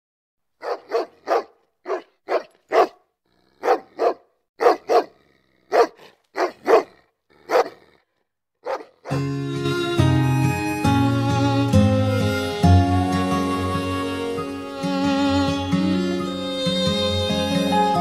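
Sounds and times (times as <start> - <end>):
dog barking: 0.6 - 7.9, 8.6 - 9.1.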